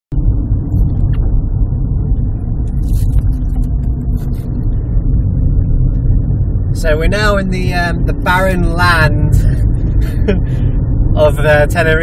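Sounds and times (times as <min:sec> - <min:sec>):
car engine and tyre rumble: 0:00.1 - 0:12.0.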